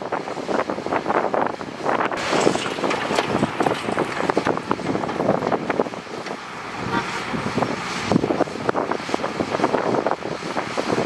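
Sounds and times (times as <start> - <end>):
construction equipment clattering: 2.2 - 7.6.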